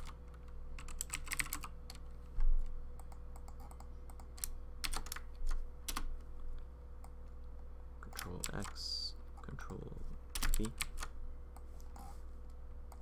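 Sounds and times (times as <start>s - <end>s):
keyboard typing: 0.0s - 2.1s, 3.0s - 6.1s, 10.3s - 11.1s.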